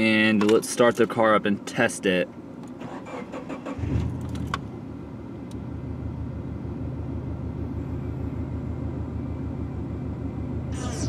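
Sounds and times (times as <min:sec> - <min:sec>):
car engine starting and idling: 0:02.4 - 0:11.0.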